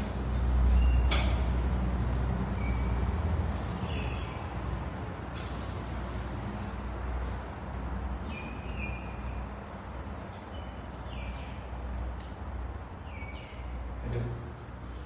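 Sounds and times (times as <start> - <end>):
small bird chirping: 13.0 - 13.8.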